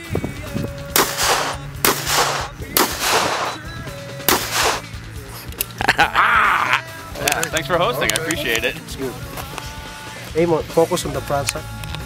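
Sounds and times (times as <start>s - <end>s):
background music with low tone: 0.0s - 12.0s
echoing handgun shots: 1.0s - 3.6s, 4.3s - 4.8s.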